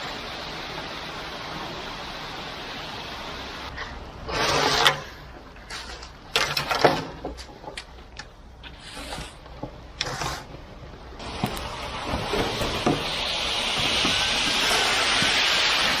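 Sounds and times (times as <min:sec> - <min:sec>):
wet concrete sliding down a chute: 0:03.7 - 0:07.1, 0:11.2 - 0:16.0.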